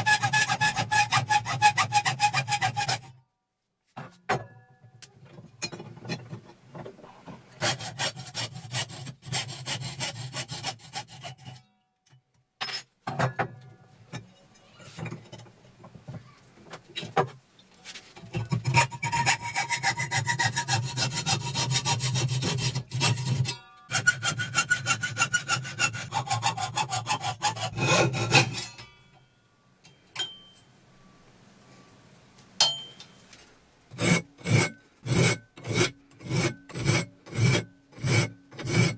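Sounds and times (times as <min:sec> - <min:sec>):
hacksaw cutting metal tubing: 0:00.0 - 0:03.1, 0:07.6 - 0:11.6, 0:18.4 - 0:28.9, 0:33.9 - 0:38.9.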